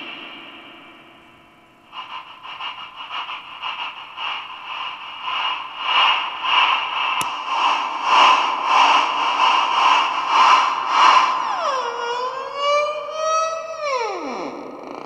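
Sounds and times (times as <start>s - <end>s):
sharp click: 7.2s - 7.4s.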